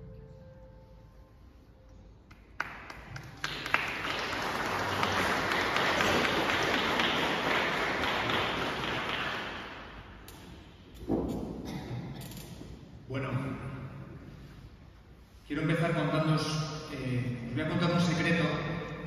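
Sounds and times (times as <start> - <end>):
audience clapping: 2.3 - 10.2.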